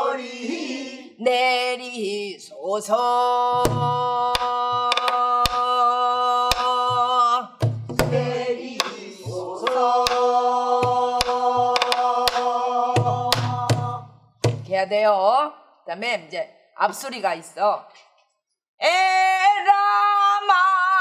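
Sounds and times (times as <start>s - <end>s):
barrel drum strokes: 7.6s - 14.7s.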